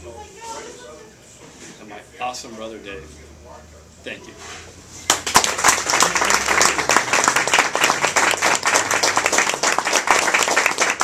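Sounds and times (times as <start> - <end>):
audience applauding: 5.1 - 11.0
loud close hand clapping: 5.1 - 11.0.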